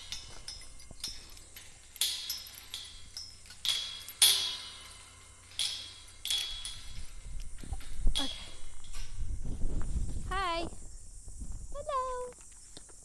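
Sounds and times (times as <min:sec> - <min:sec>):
metal striking wire fence: 0:00.0 - 0:09.4.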